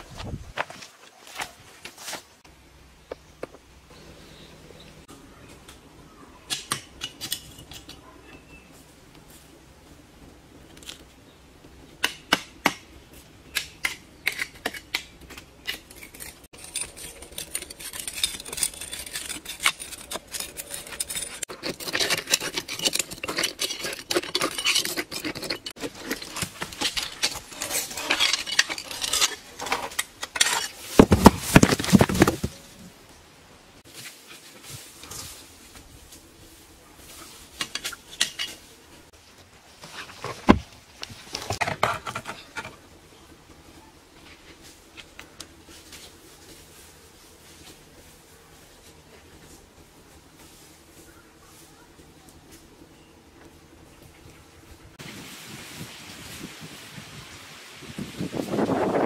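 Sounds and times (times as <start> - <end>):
metal blade scraping rock: 13.6 - 32.6, 37.5 - 38.8, 41.3 - 42.8.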